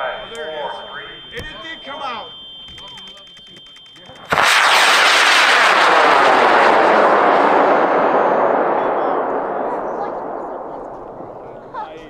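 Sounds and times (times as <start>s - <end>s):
rocket motor roar: 4.3s - 11.7s.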